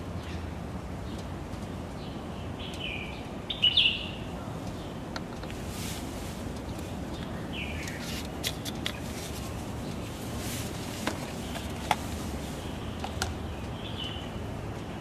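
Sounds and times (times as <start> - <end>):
bird chirps: 2.0 - 5.0, 7.1 - 8.1
oil filler cap being handled: 6.6 - 9.5, 10.7 - 12.2.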